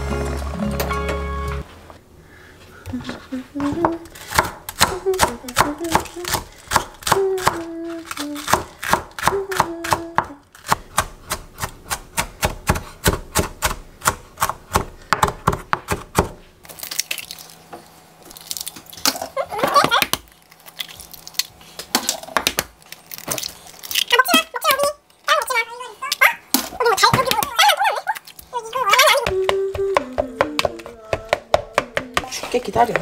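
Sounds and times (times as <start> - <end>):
knife chopping on wooden board: 4.3 - 7.6, 8.5 - 16.4.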